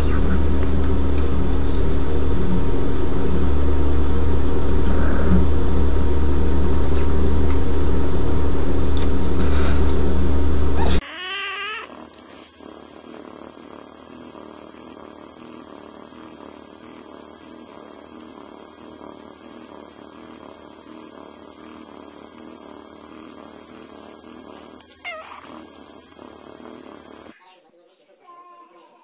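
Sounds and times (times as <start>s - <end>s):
loud low hum: 0.0s - 11.0s
kitten purring: 0.0s - 27.4s
kitten meowing: 10.8s - 11.9s, 25.0s - 25.4s.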